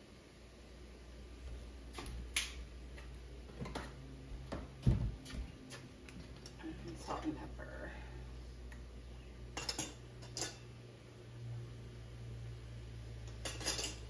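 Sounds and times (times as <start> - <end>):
steady low hum: 0.0 - 14.0
kitchen utensils clicking: 9.6 - 10.6, 13.3 - 14.0.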